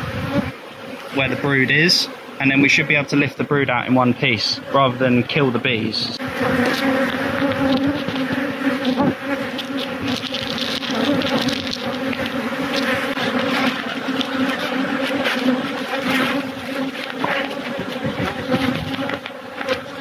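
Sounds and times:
honeybees buzzing: 0.0 - 20.0
crackles and rustles: 6.4 - 20.0.

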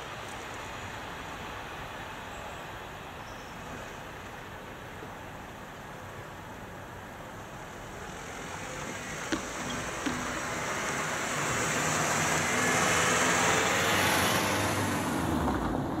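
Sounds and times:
car engine and tyre noise: 0.0 - 16.0
wheels thumping over rails: 9.2 - 10.6.

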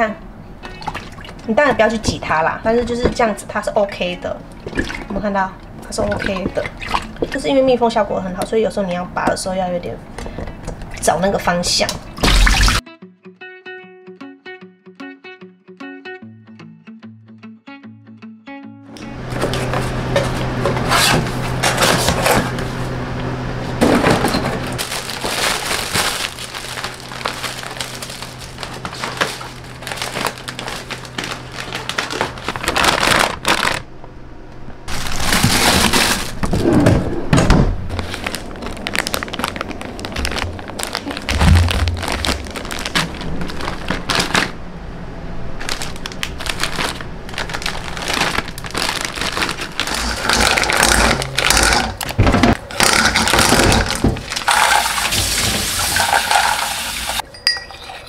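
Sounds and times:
vegetables packed into plastic drawer: 19.0 - 22.7, 23.8 - 33.8, 34.9 - 44.6, 45.6 - 56.5
plastic bags crinkling: 24.0 - 33.9, 34.9 - 36.7, 37.8 - 44.6, 45.6 - 56.7
cardboard creasing and crackling: 24.8 - 33.8, 34.9 - 44.6, 45.6 - 54.5.

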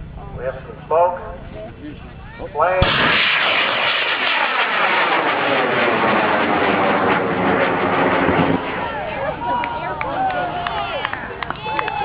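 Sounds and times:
rocket motor rushing roar: 2.8 - 11.1.

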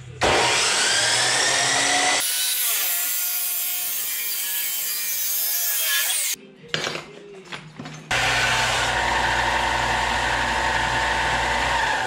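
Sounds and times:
chop saw cutting metal pipe: 0.2 - 6.4.

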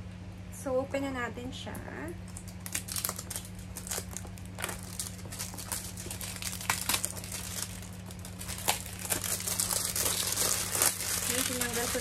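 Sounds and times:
plastic wrap crinkling: 2.2 - 12.0.

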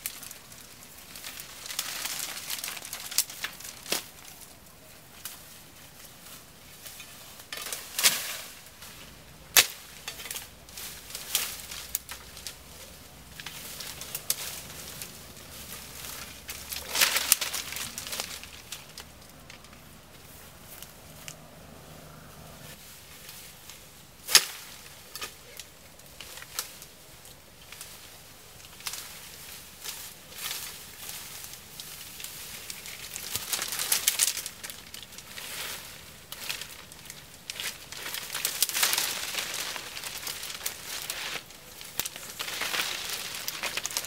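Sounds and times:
branches snapping: 0.0 - 21.5, 22.6 - 44.0
undergrowth rustling: 0.0 - 44.0.

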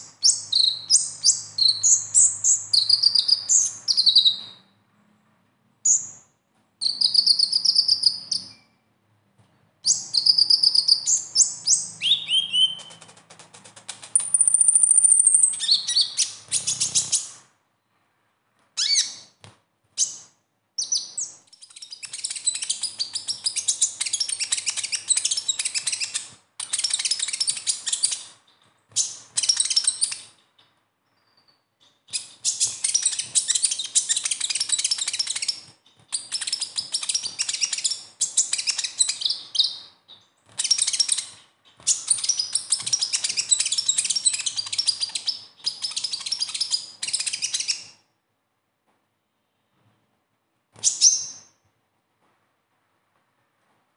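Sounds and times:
bird twittering: 0.0 - 4.6, 6.8 - 8.7, 9.9 - 13.1, 14.2 - 17.4, 18.8 - 19.3.

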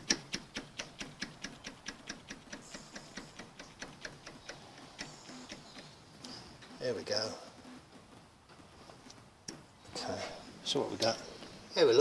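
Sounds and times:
lathe drive train ticking: 0.0 - 5.9.

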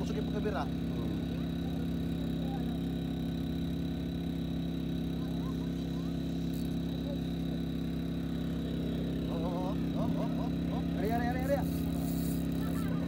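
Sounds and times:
low engine drone: 0.0 - 13.0.

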